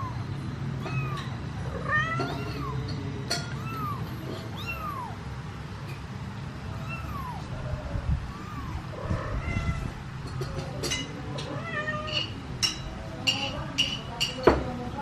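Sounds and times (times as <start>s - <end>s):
kitten meowing: 0.8s - 2.8s, 3.5s - 5.2s, 6.7s - 10.0s.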